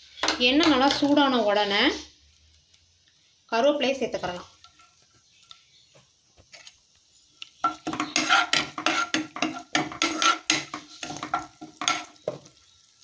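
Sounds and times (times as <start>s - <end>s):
spoon scraping a pan: 4.4s - 5.7s, 7.6s - 12.6s.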